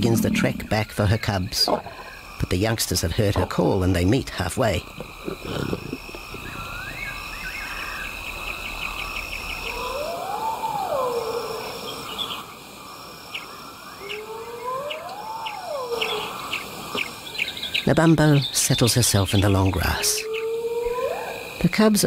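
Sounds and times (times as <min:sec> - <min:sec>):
insect chirps: 0:00.0 - 0:22.0
insects trilling: 0:00.0 - 0:22.0
long rising and falling calls: 0:14.0 - 0:16.6.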